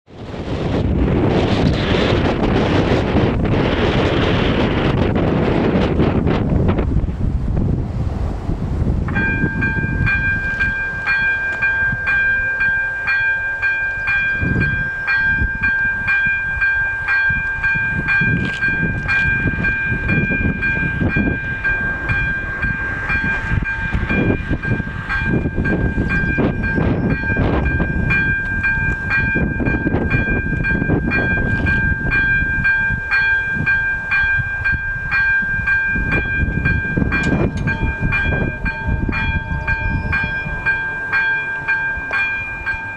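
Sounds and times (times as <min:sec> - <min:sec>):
wind buffeting microphone: 0:00.1 - 0:42.9
electronic warning bell ringing: 0:09.2 - 0:42.9.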